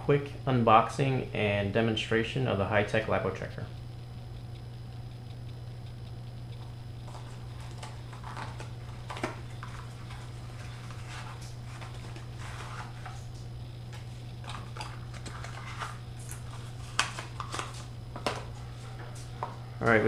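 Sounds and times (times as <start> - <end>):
steady low hum: 0.0 - 20.0
cardboard box rustling and scraping: 7.1 - 13.3, 14.0 - 17.9.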